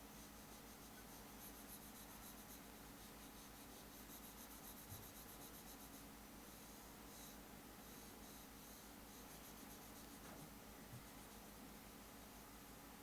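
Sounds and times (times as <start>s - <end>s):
low steady hum: 0.0s - 13.0s
stylus scratching on whiteboard: 0.1s - 11.6s.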